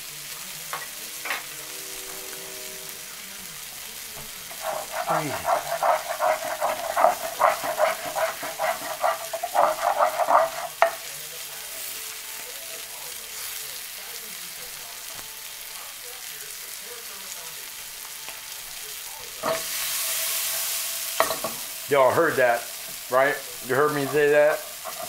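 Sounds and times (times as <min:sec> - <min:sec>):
chicken sizzling in butter: 0:00.0 - 0:25.0
spatula scraping frying pan: 0:04.2 - 0:11.2, 0:19.4 - 0:25.0.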